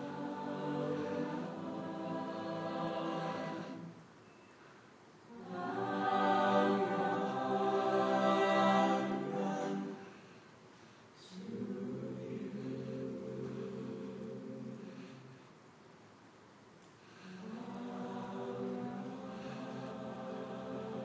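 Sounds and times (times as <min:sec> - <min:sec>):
a cappella group singing chords: 0:00.0 - 0:15.6, 0:17.0 - 0:21.0.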